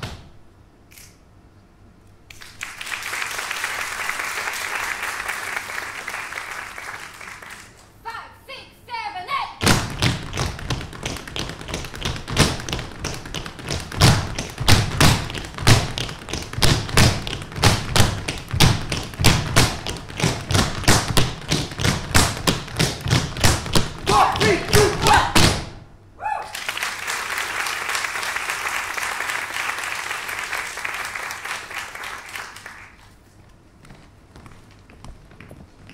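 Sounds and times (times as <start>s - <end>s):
audience applauding: 2.3s - 7.9s, 26.5s - 33.2s
tap shoes striking stage: 9.6s - 25.7s, 33.8s - 35.9s.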